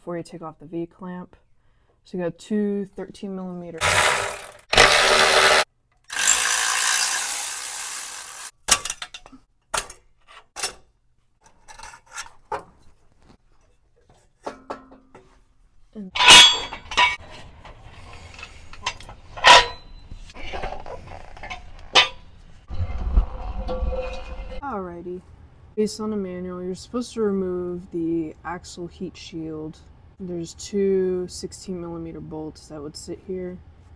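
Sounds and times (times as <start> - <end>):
ratchet wrench running: 3.8 - 8.5.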